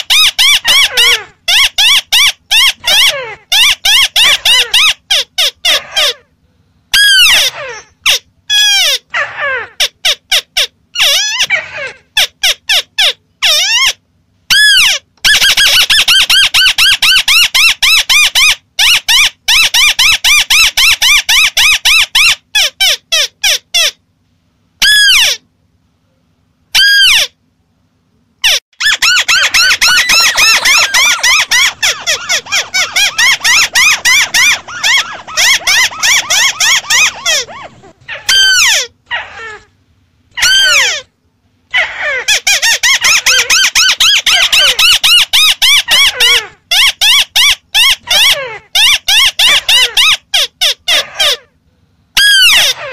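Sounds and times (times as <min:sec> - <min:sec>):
crakes chattering call: 0:28.8 - 0:38.9.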